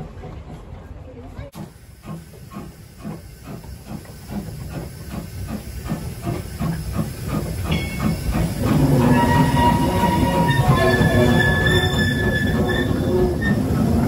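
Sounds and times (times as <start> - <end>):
steam locomotive chuffing: 1.5 - 14.0
steam hissing: 1.6 - 14.0
wheels squealing on rails: 4.4 - 14.0.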